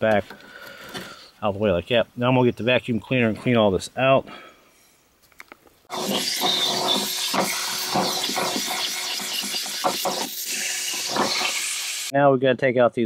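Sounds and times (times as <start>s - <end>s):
vacuum cleaner running: 5.9s - 12.1s.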